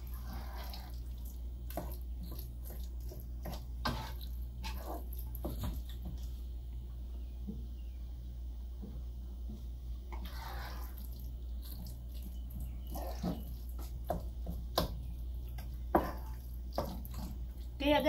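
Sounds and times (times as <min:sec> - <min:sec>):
steady low hum: 0:00.0 - 0:18.0
spoon scraping meat in metal pot: 0:01.7 - 0:06.0, 0:10.1 - 0:17.6.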